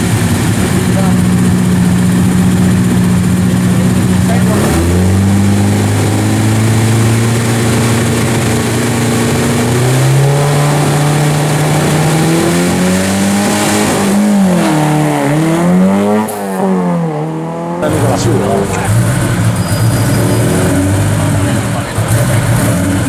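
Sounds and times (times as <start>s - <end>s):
rally car engine revving: 0.0s - 23.0s.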